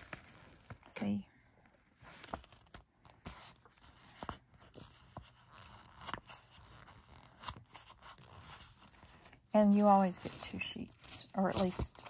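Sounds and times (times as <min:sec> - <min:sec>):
paper sticker sheets rustling: 0:01.9 - 0:12.0.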